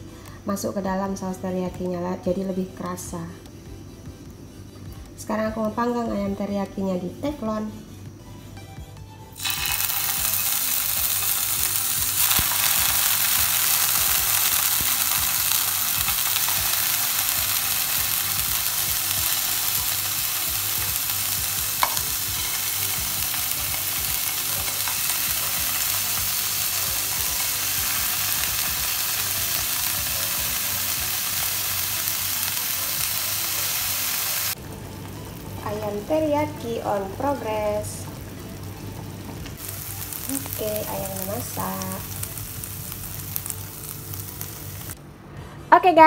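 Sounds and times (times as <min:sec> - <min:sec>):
chicken sizzling in hot oil: 0:09.4 - 0:38.7, 0:39.5 - 0:45.0.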